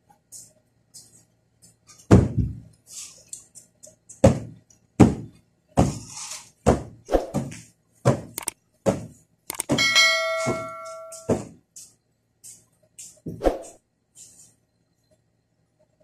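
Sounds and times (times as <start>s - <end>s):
cushions thumping: 2.1s - 2.7s, 4.2s - 11.6s.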